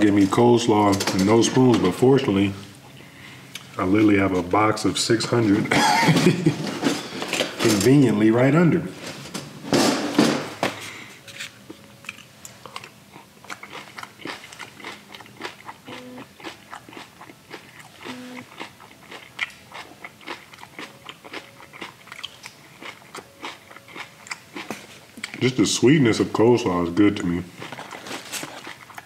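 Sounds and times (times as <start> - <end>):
crunchy food being eaten: 12.0 - 25.5, 27.5 - 29.0.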